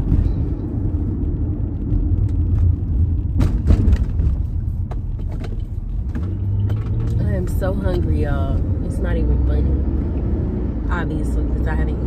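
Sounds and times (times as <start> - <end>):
car driving rumble inside cabin: 0.0 - 12.0.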